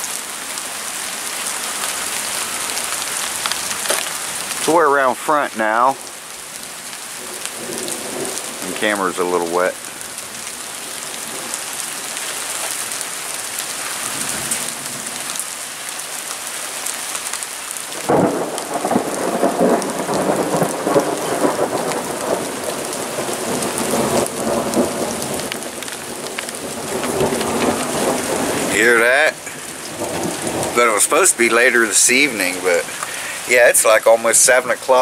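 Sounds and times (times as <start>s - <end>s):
steady rain falling: 0.0s - 35.0s
thunder rolling and rumbling: 7.2s - 9.2s, 18.0s - 32.7s.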